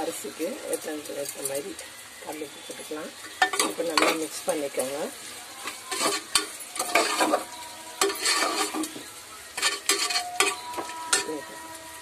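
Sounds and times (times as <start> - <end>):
food sizzling: 0.0 - 12.0
metal spoon scraping a pot: 3.2 - 4.4, 5.6 - 11.7.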